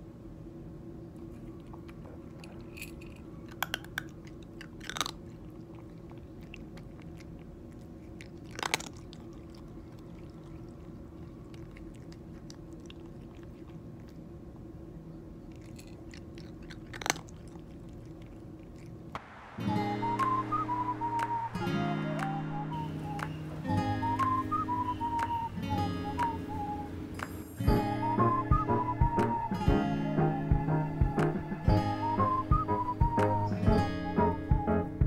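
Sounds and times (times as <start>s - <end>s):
steady low hum: 0.0s - 35.0s
cat crunching dry kibble: 1.2s - 14.7s, 15.4s - 19.2s.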